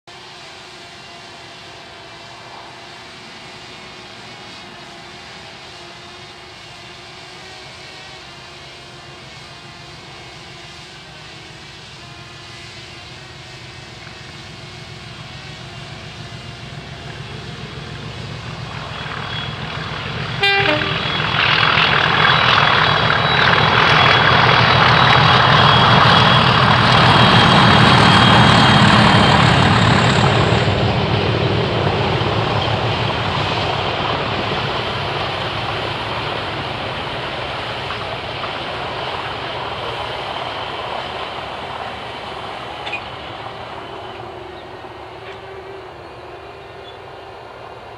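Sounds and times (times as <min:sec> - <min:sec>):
diesel locomotive engines thrashing: 0:09.2 - 0:47.9
steady high whistle: 0:14.9 - 0:31.2
locomotive horn toot: 0:20.3 - 0:21.4.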